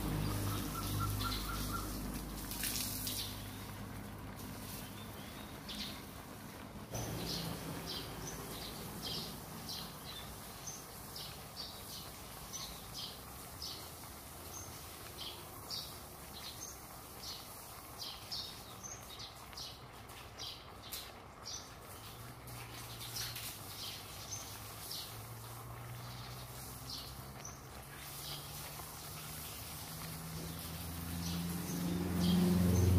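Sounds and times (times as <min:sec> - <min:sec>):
small bird chirping: 0:00.1 - 0:02.0.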